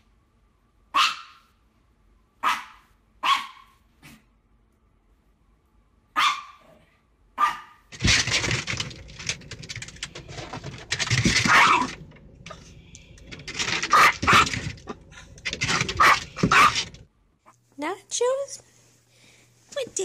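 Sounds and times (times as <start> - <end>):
dog barking: 0.9 - 1.5, 2.4 - 3.8, 6.2 - 7.9, 11.5 - 11.9, 13.9 - 14.7, 15.8 - 16.9
small dog yapping: 0.9 - 1.5, 2.4 - 4.2, 6.2 - 6.8, 7.4 - 7.8, 11.4 - 11.9, 13.9 - 14.7, 15.7 - 16.9
windshield wiper scraping: 8.0 - 17.0.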